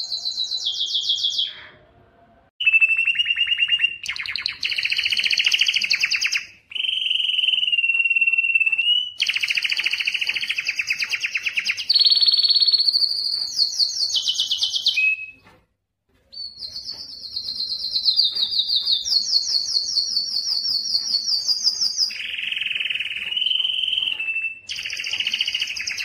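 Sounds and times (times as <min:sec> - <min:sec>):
canary singing rapid trills: 0:16.3 - 0:26.0.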